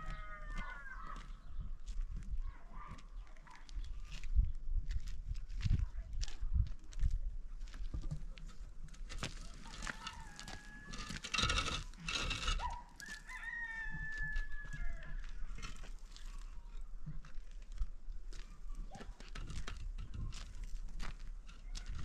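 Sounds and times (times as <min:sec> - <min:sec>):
rooster crowing: 0:00.0 - 0:01.0, 0:09.4 - 0:11.6, 0:12.6 - 0:15.3
loud scraping noise: 0:09.8 - 0:12.8.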